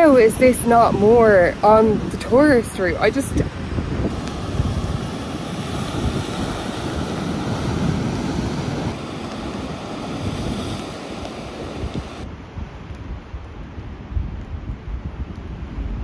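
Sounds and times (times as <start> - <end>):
surf breaking against rocks: 0.0 - 12.2
wind buffeting the microphone: 0.0 - 16.0.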